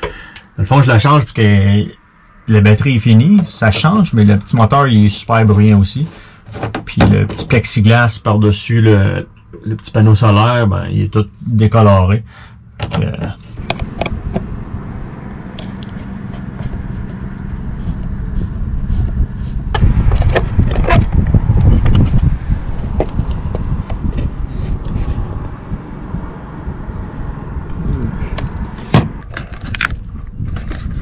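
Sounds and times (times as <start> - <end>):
plastic fan housing clicks and scrapes: 13.5 - 14.5, 15.1 - 25.4, 28.2 - 31.0
wind rumble on microphone: 13.6 - 31.0.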